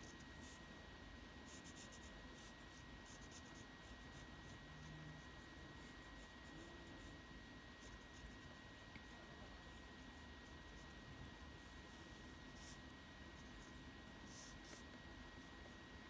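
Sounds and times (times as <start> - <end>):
pencil scratching on paper: 1.5 - 7.2, 7.8 - 11.0, 12.5 - 14.9.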